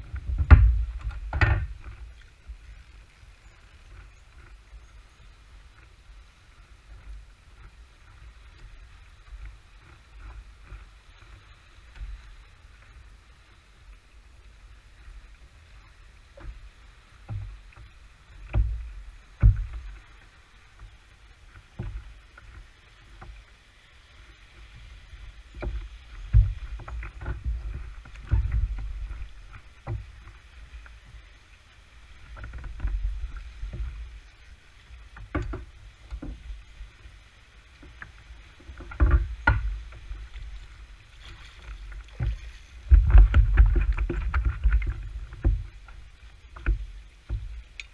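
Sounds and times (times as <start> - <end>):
water rumble: 0.0 - 47.9
wind: 0.0 - 47.9
knocks on plastic kayak hull: 38.9 - 39.8.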